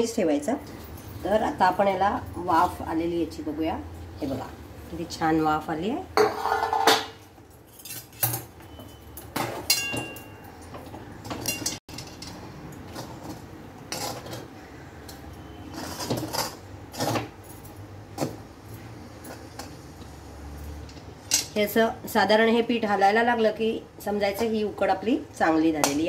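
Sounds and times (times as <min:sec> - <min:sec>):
metal spatula scraping steel pan: 0:13.9 - 0:14.5, 0:15.4 - 0:17.3.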